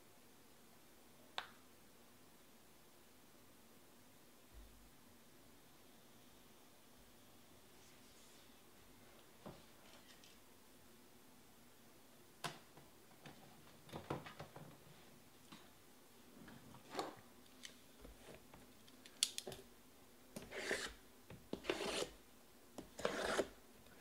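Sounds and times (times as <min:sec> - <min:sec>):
boxes scraping across table: 0:20.4 - 0:21.0, 0:23.0 - 0:23.5.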